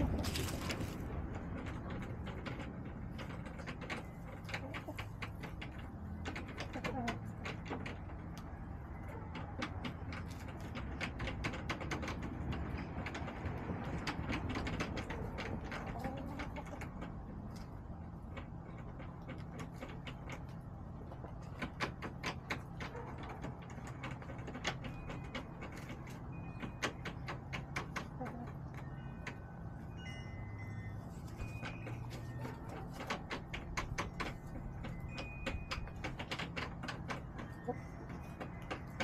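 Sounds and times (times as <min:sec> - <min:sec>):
chickens pecking taps: 0:00.0 - 0:29.9, 0:31.0 - 0:39.0.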